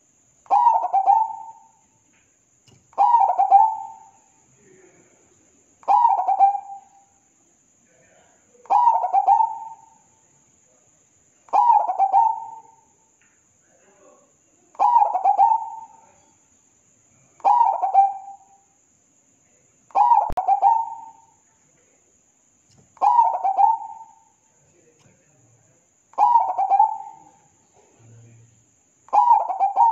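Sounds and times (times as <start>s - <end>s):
dove cooing: 0.0s - 1.8s, 2.9s - 4.1s, 5.8s - 7.0s, 8.7s - 10.0s, 11.5s - 12.8s, 14.8s - 16.1s, 17.4s - 18.4s, 19.9s - 21.3s, 23.0s - 24.3s, 26.2s - 28.2s, 29.1s - 29.9s.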